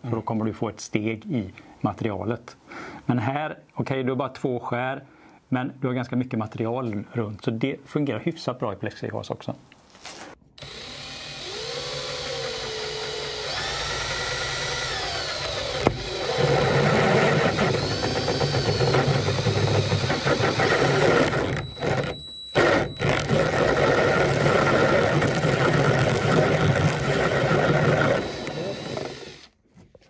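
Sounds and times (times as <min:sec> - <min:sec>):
drill drilling into plexiglass: 0:10.6 - 0:29.6.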